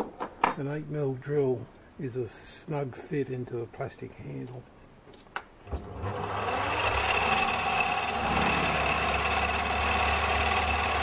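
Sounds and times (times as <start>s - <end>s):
lathe motor whine: 5.7s - 11.0s.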